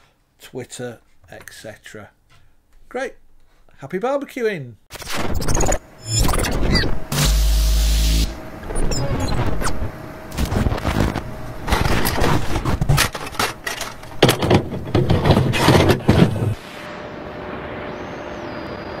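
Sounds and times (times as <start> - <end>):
harsh static crackles: 4.9 - 17.9.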